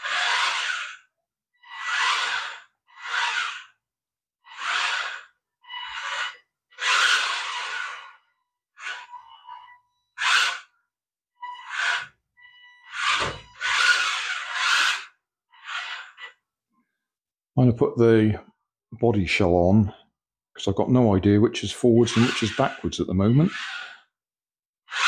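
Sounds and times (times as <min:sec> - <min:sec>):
electric motors whirring in bursts: 0:23.5 - 0:24.0.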